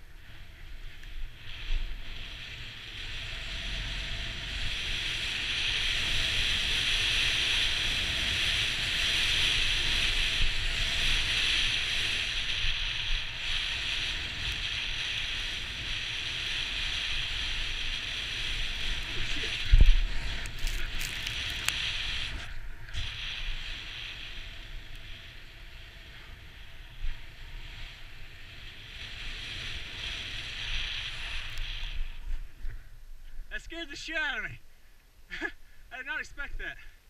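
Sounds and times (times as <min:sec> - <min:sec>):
wind rumbling on microphone: 0:00.0 - 0:33.8
snow spraying under snowboard: 0:01.4 - 0:32.6.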